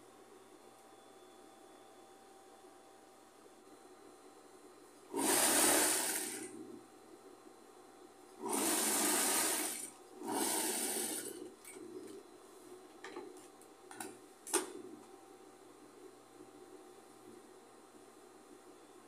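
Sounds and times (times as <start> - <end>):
sewing machine stitching: 5.1 - 6.5, 8.4 - 11.4.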